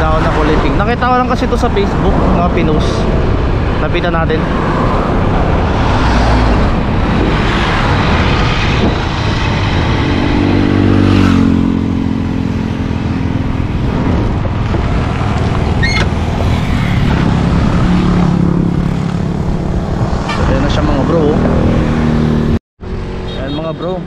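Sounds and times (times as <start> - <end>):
wind and road rush: 0.0 - 24.0
motorcycle engine: 6.8 - 23.6.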